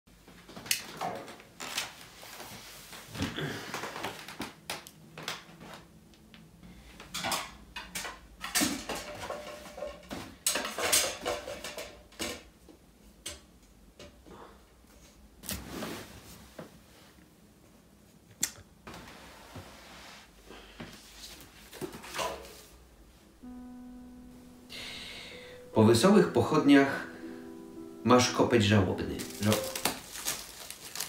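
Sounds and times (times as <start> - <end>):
paper rustling: 29.2 - 31.0.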